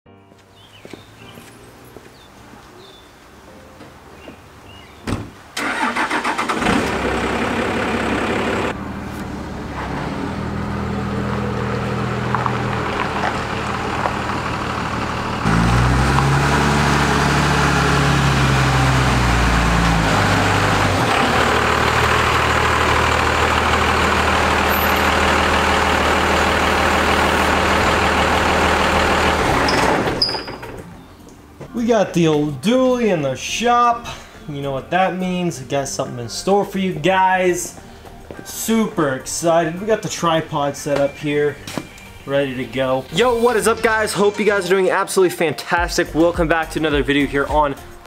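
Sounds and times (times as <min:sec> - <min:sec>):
diesel truck engine starting and idling: 0:05.4 - 0:31.1, 0:38.5 - 0:45.0
truck engine revving while driving: 0:05.6 - 0:30.5.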